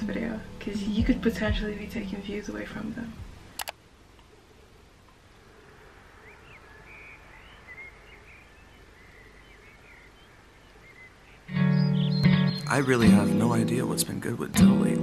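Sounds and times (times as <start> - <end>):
low steady hiss: 0.0 - 15.0
sharp double click: 3.6 - 3.8
short bird chirps: 6.3 - 12.9.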